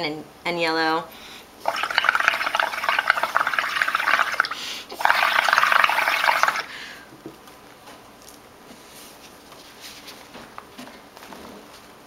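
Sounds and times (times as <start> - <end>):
blowing bubbles through a straw: 1.6 - 6.7
bubbling gurgle of foam: 1.7 - 6.7.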